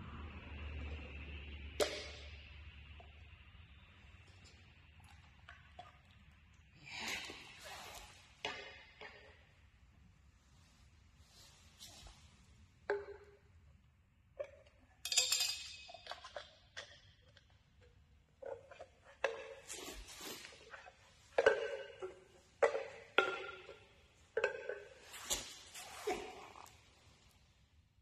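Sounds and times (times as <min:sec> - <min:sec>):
metal tins clinking on concrete: 0:14.4 - 0:17.4.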